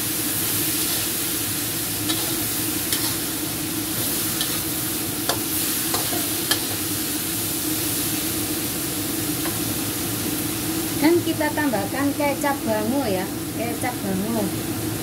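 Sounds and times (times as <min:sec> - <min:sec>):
potatoes sizzling in a wok: 0:00.0 - 0:15.0
metal spatula scraping pan: 0:02.1 - 0:03.4, 0:04.0 - 0:04.7, 0:05.3 - 0:06.8.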